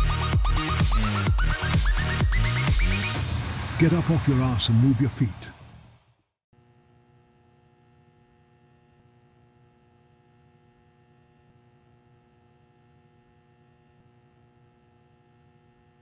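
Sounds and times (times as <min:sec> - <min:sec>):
faint steady hum: 0:06.6 - 0:16.0.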